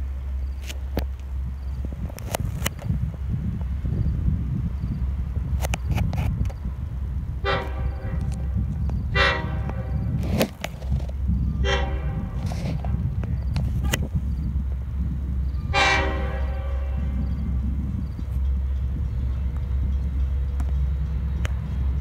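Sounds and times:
low rumble of locomotive: 0.0s - 22.0s
train air horn blasts: 7.4s - 10.2s, 11.6s - 13.0s, 15.6s - 17.4s.

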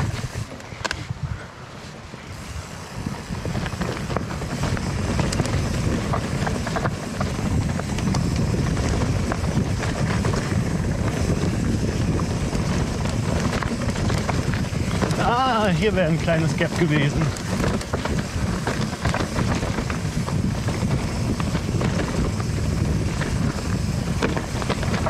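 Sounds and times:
bike rolling over rocky trail: 0.0s - 1.2s, 2.3s - 25.0s
bike clicks and rattles: 0.0s - 25.0s
wind buffeting microphone: 0.0s - 25.0s.

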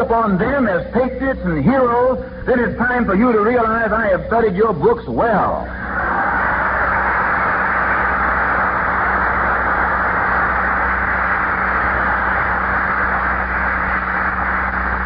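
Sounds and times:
low recording hum: 0.0s - 15.0s
audience applauding: 5.8s - 15.0s.

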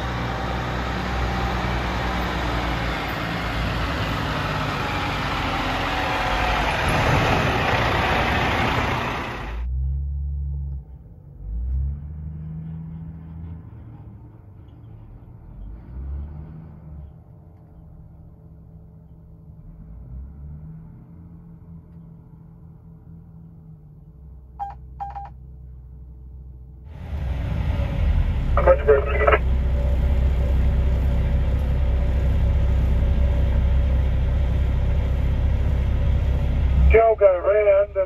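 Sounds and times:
diesel truck engine running: 0.0s - 15.0s, 25.9s - 38.0s
low rumble with thumps: 6.7s - 14.3s, 25.6s - 38.0s.

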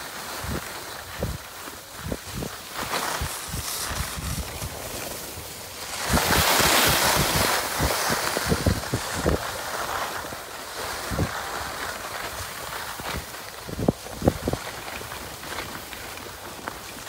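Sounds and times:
skis scraping on snow: 0.0s - 17.0s
wind buffeting microphone: 0.4s - 9.6s, 10.2s - 15.7s.

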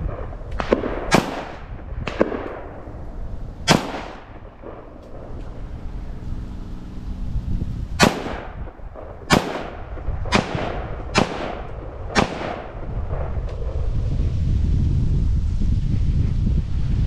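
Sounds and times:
gunshots echoing: 0.0s - 3.0s, 3.6s - 5.9s, 8.0s - 13.4s.

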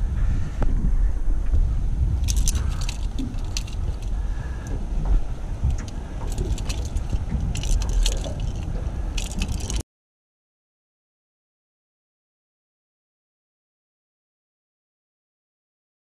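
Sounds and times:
wind buffeting microphone: 0.0s - 9.8s
sharp clicks and light rattles: 2.2s - 4.8s, 5.6s - 9.8s.

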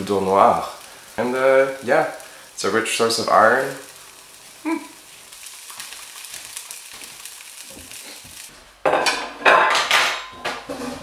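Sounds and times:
food frying in a pan: 0.0s - 11.0s
plate and cutlery clattering: 8.9s - 11.0s.

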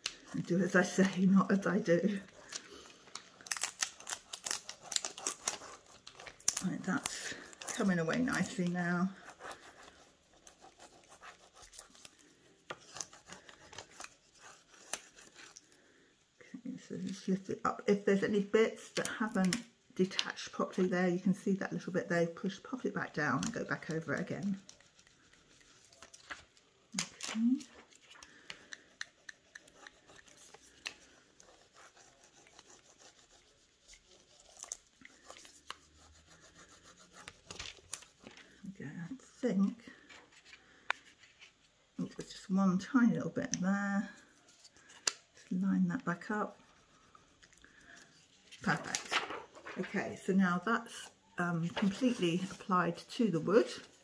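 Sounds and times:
applicator scratching plastic film: 0.1s - 15.6s
scratchy rubbing on plastic film: 0.1s - 15.6s, 22.4s - 38.6s, 44.2s - 54.0s.

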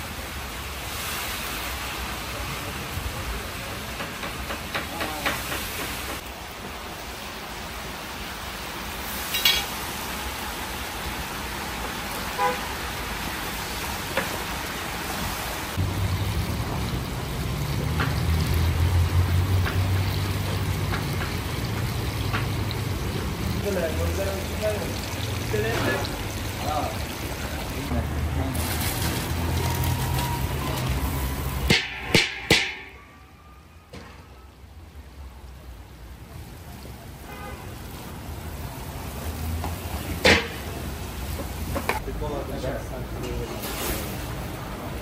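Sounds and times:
meat sizzling in hot oil: 0.0s - 3.1s, 4.6s - 32.8s.

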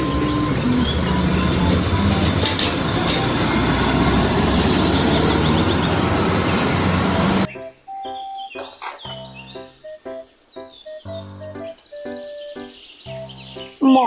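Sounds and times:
road and traffic noise: 0.0s - 7.5s
truck diesel engine: 0.0s - 7.5s.

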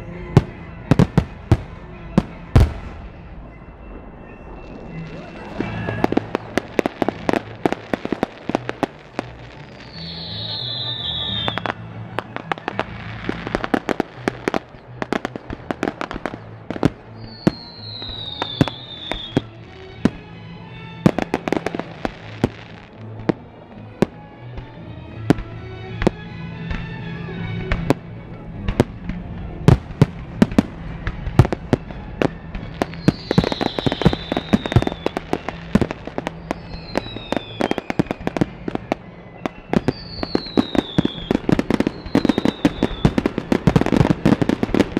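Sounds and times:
fireworks bangs and crackling: 0.0s - 44.9s
fireworks whistles falling in pitch: 0.4s - 20.3s, 30.4s - 44.9s.

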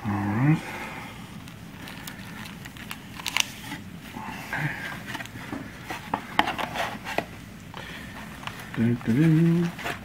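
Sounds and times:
wrapper crinkling: 1.4s - 3.8s, 8.4s - 10.0s.

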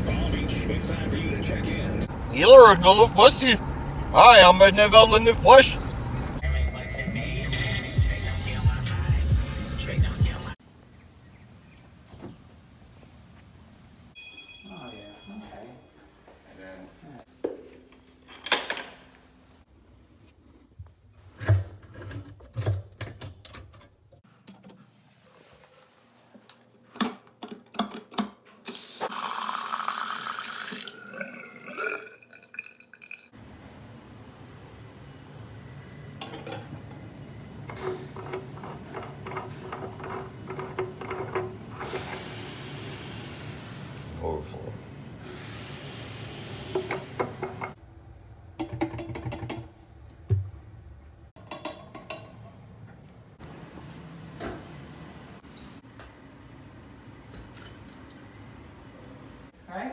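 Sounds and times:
thin high ringing tone: 14.2s - 16.0s
faucet running into sink: 28.7s - 33.3s
water draining: 28.7s - 33.4s
metallic clinks of plumbing parts: 36.2s - 37.0s, 37.6s - 42.3s, 51.4s - 52.5s.

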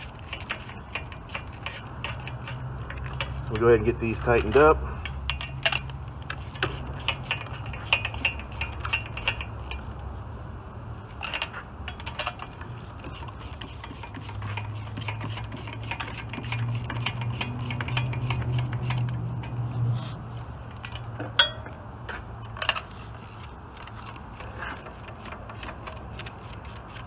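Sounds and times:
hand ratchet clicking: 0.0s - 9.9s, 11.2s - 19.6s.

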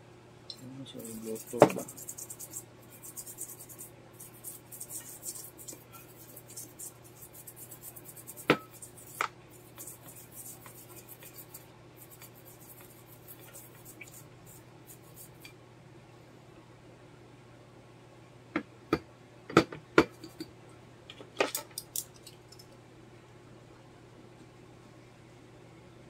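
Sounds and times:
steady low hum: 0.0s - 26.0s
brush scrubbing circuit board: 0.9s - 15.5s.

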